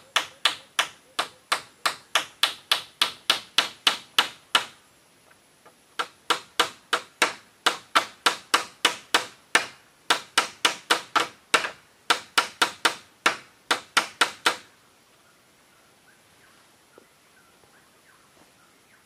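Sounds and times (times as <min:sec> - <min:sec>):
hammer strikes on bamboo: 0:00.1 - 0:04.8, 0:06.0 - 0:14.7.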